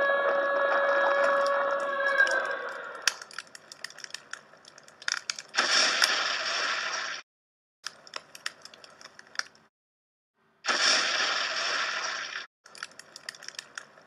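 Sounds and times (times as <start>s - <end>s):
crackling sparks: 10.7s - 14.0s.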